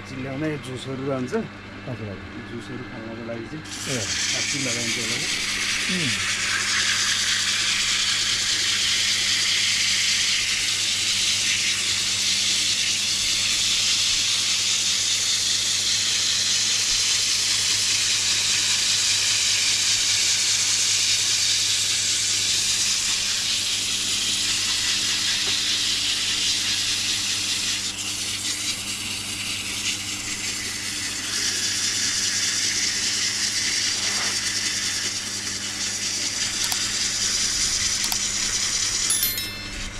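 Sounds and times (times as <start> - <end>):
low machine hum: 0.0 - 9.6
wood hissing against lathe tool: 3.6 - 13.0.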